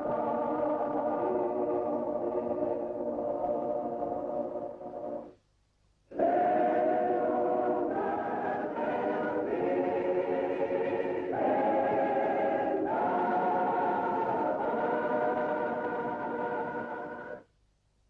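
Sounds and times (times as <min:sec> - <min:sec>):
choir singing sustained chords: 0:00.0 - 0:05.4, 0:06.1 - 0:17.5.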